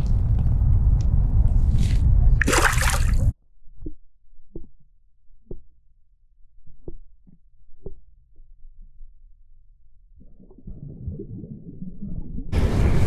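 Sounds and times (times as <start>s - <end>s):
fish splashing at surface: 2.4s - 3.3s
underwater low rumble: 3.7s - 13.0s.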